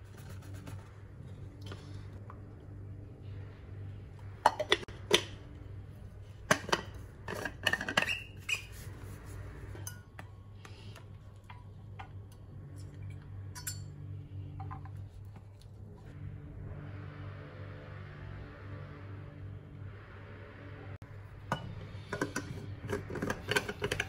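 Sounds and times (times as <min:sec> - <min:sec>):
steady low hum: 0:00.0 - 0:07.7, 0:08.7 - 0:24.0.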